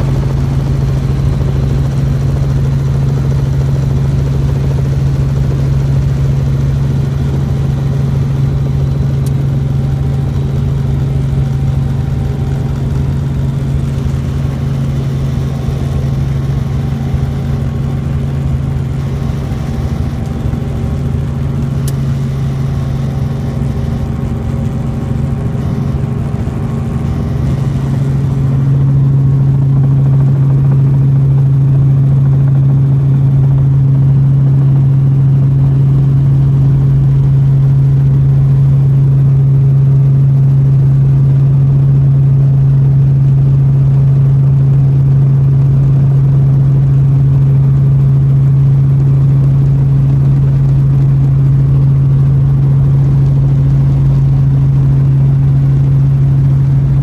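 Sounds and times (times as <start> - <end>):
helicopter engine and rotors droning: 0.0 - 57.0.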